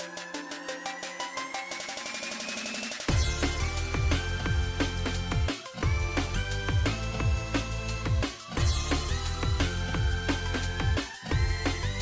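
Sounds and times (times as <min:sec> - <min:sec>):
kick drum beat: 0:03.1 - 0:12.0.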